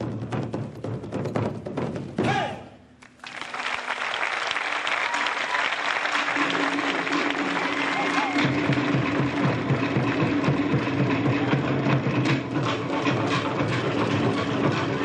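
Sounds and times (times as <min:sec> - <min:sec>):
fast drumming: 0:00.0 - 0:02.5, 0:05.1 - 0:15.0
audience applause and cheering: 0:03.0 - 0:12.0
performers shouting: 0:07.2 - 0:09.0.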